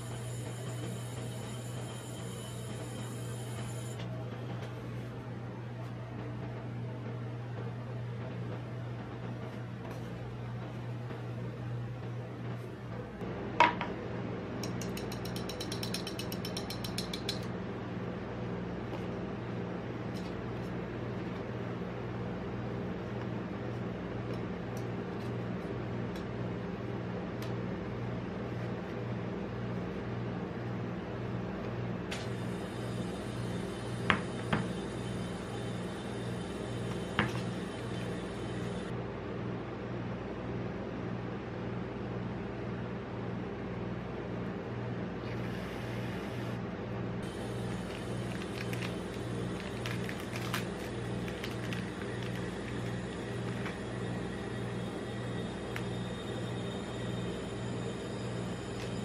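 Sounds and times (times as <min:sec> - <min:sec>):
steady low hum: 0:00.0 - 0:59.0
metal tongs clicking: 0:14.6 - 0:17.5.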